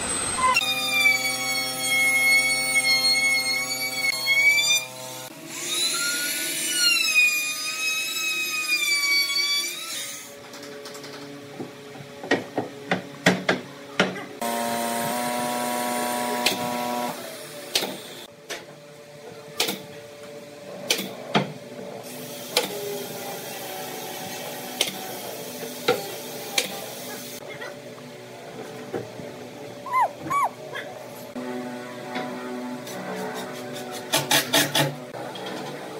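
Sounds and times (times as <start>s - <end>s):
loud machine hum: 14.4s - 18.3s, 21.8s - 34.0s.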